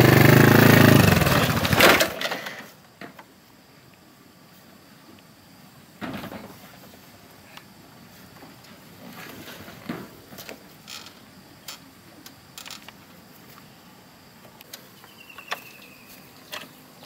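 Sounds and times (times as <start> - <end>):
clicks knocks and creaks: 9.6 - 13.0.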